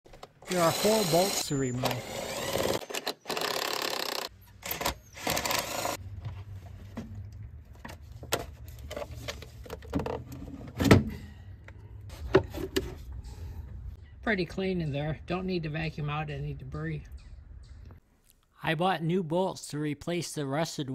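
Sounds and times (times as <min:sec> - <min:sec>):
ratchet whirring: 0:00.5 - 0:06.0.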